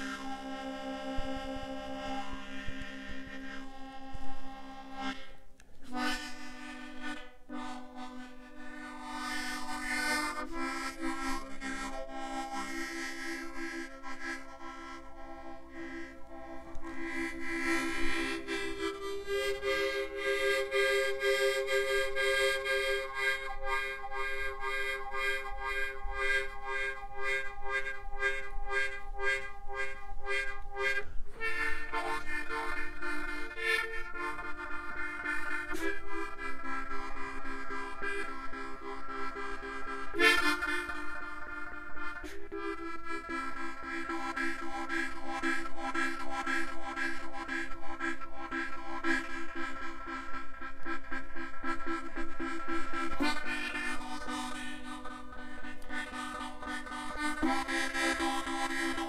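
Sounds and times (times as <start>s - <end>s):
harmonica chords: 0.0s - 59.0s.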